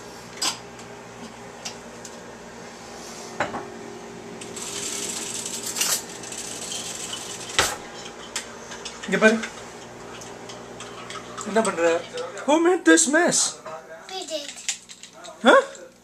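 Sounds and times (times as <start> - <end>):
metal pots clanking: 6.6 - 12.4.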